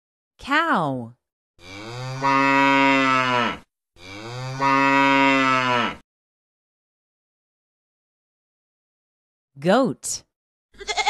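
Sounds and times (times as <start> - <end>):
cow mooing: 1.6 - 6.0.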